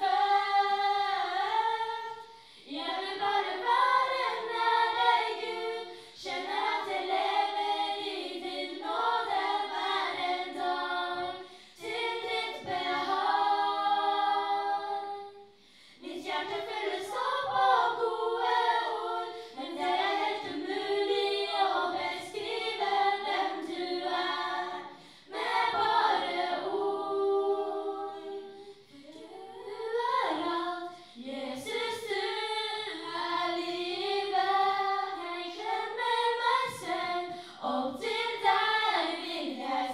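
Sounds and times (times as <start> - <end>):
women singing a cappella: 0.0 - 39.9.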